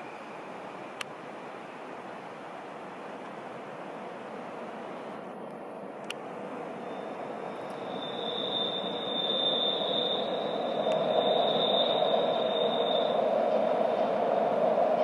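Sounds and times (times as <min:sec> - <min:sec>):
train rumbling: 0:00.0 - 0:15.0
train wheels squealing: 0:06.8 - 0:15.0.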